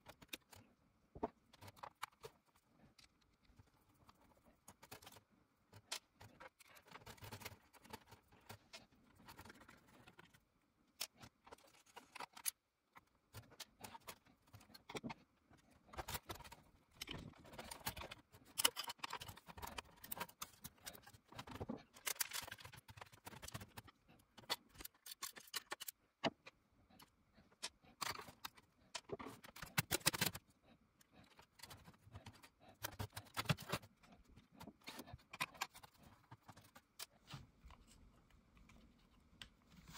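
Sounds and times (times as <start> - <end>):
screwdriver clicks and scrapes in metal chassis: 15.9 - 30.4.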